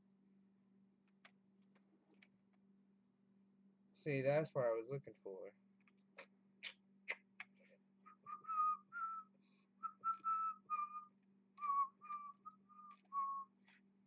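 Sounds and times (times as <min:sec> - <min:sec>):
person whistling a tune: 0:08.1 - 0:13.6.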